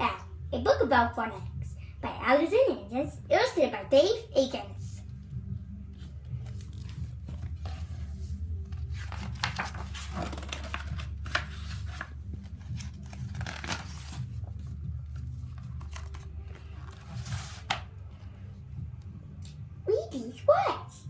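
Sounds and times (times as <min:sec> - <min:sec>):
low steady hum: 0:00.0 - 0:21.0
book pages rustling: 0:05.9 - 0:18.4.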